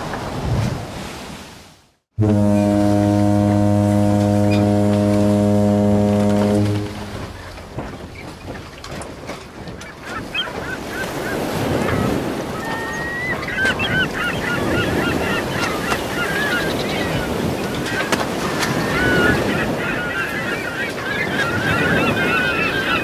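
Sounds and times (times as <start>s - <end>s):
wind: 0.0s - 23.0s
low horn blast: 2.2s - 7.8s
water noise: 2.2s - 23.0s
flock of birds calling: 9.8s - 23.0s.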